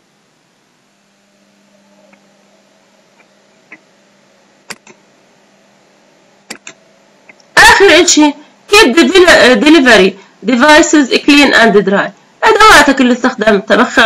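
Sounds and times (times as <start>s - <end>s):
faint electrical hum: 0.0s - 14.0s
computer mouse clicks: 4.7s - 5.0s, 6.5s - 7.5s.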